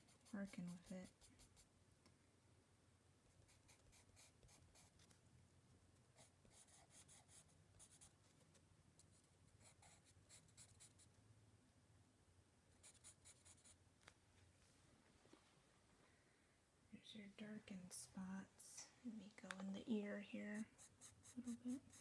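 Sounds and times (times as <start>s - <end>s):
pencil scratching on paper: 0.0s - 1.7s, 3.4s - 5.1s, 6.2s - 8.1s, 9.6s - 11.1s, 12.8s - 13.8s, 20.6s - 22.0s.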